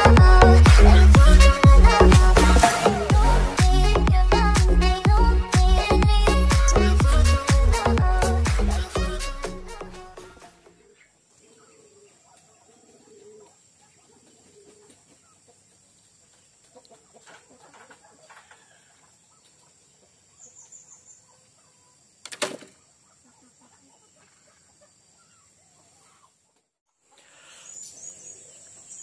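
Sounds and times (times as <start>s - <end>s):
chickens clucking: 10.6s - 27.4s.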